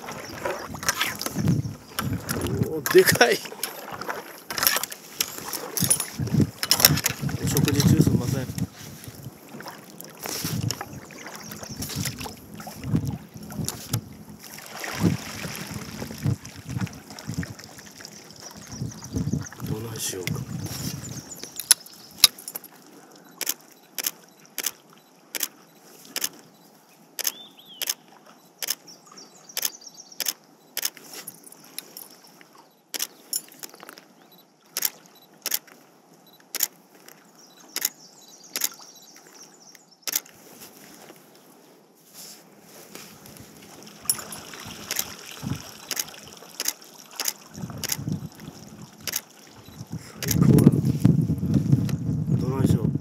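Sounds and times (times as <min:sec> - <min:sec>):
moose chewing with crunches: 0:00.0 - 0:14.7, 0:42.2 - 0:51.2
faint water trickle: 0:00.0 - 0:27.0, 0:42.9 - 0:51.8.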